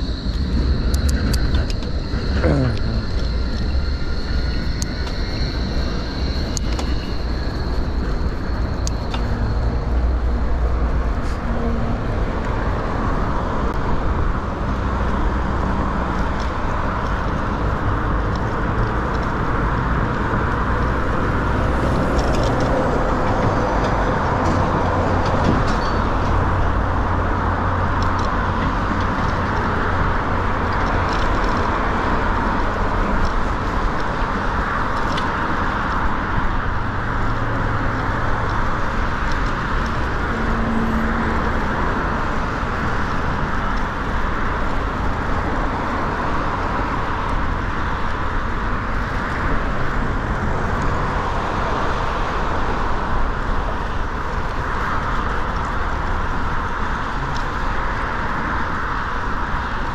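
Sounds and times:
thin high whine: 0.0s - 14.6s
city road traffic: 0.0s - 59.9s
wind buffeting microphone: 0.0s - 59.9s.

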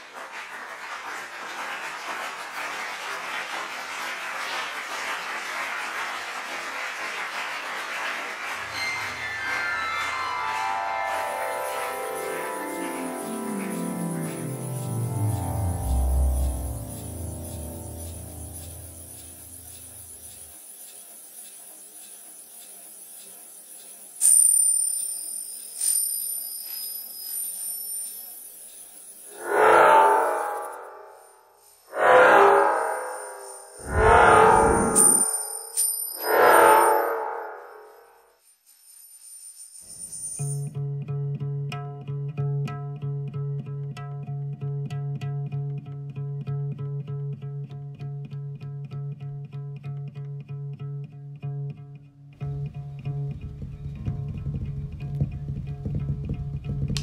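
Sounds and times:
high metallic ringing strikes: 8.7s - 20.5s, 29.3s - 38.2s
steady rushing hiss: 11.4s - 24.2s.

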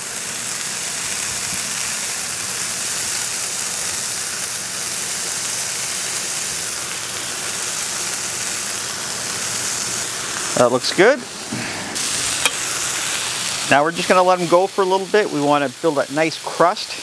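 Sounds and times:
patties sizzling on griddle: 0.0s - 17.0s.

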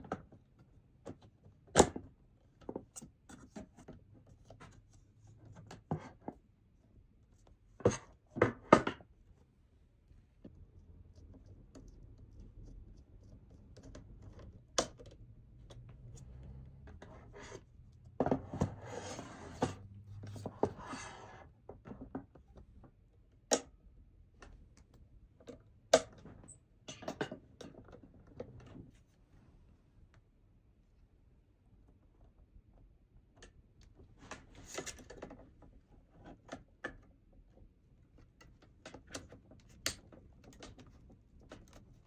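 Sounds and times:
rubbing and scraping: 16.9s - 21.4s.

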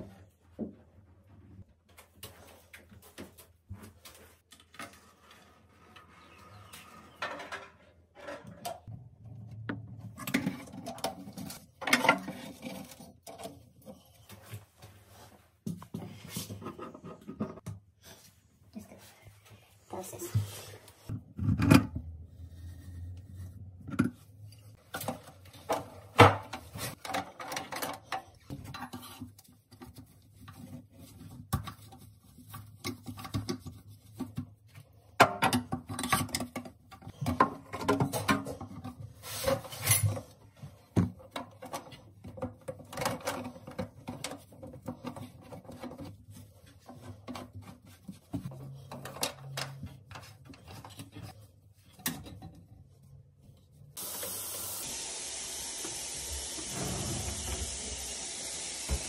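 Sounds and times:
plastic pipes clattering: 9.7s - 14.6s, 23.8s - 53.0s.

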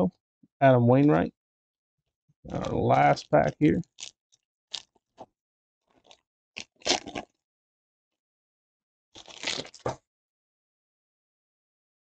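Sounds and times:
foil wrapper tearing and crinkling: 6.0s - 7.3s, 9.2s - 10.0s.

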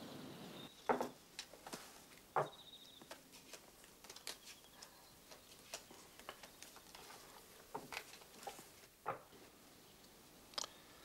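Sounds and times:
playing cards clicking: 3.1s - 4.6s.

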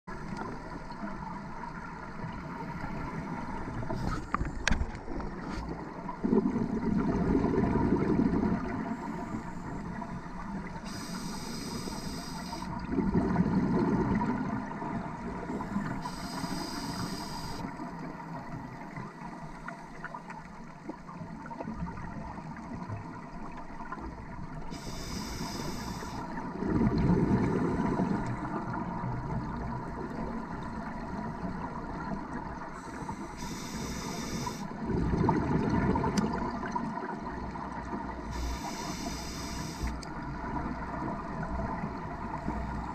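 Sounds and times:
faint steady hum: 0.1s - 42.9s
gurgling exhaled bubbles: 2.8s - 9.3s, 12.7s - 16.0s, 26.2s - 32.8s, 34.1s - 38.1s
regulator hiss on inhale: 8.8s - 12.8s, 15.5s - 17.8s, 24.7s - 26.4s, 32.8s - 34.8s, 38.3s - 40.0s, 42.4s - 42.9s.

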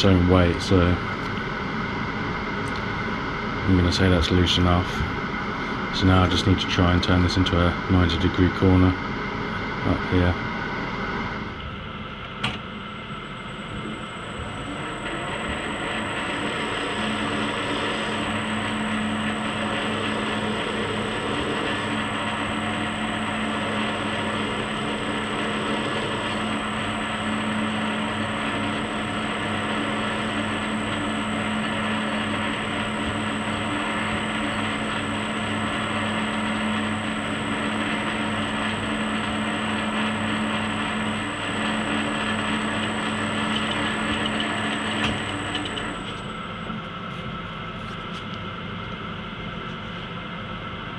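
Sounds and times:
metal lathe running: 12.9s - 46.8s.

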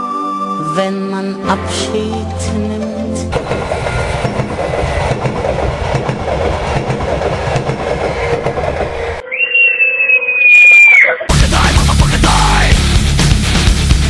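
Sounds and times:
train rumbling on rails: 3.3s - 9.2s
wheel clatter: 3.4s - 9.2s
high shrill falling tone: 9.2s - 11.3s.

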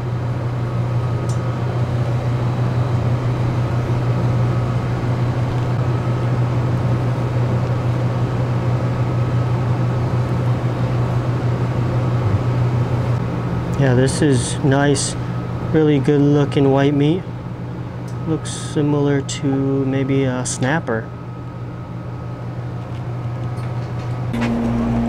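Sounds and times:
boat machinery drone: 0.0s - 25.0s.

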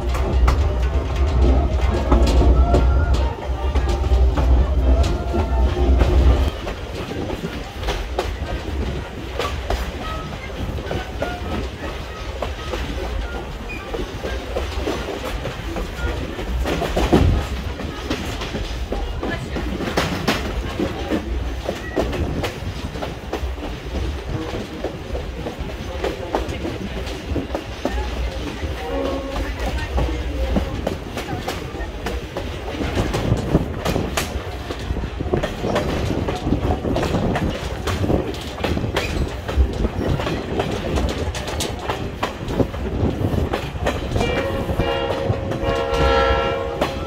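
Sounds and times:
train rumbling: 0.0s - 47.0s
wheels clicking over rail joints: 0.0s - 47.0s.

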